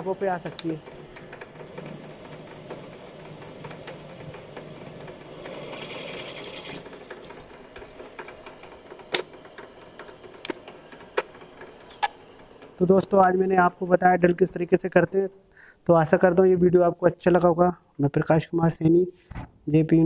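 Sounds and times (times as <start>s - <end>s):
drill cutting into workpiece: 1.7s - 6.8s.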